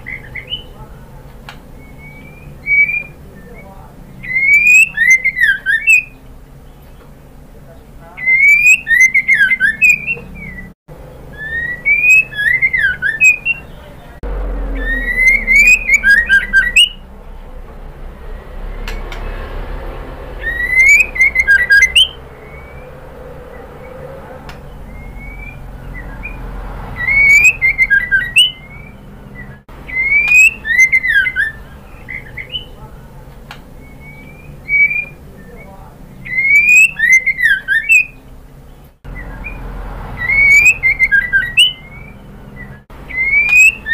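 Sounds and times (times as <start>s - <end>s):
bird whistling and chattering: 0.0s - 0.8s, 1.7s - 6.2s, 8.2s - 17.0s, 20.4s - 32.9s, 33.8s - 38.3s, 39.1s - 39.6s, 40.2s - 43.9s.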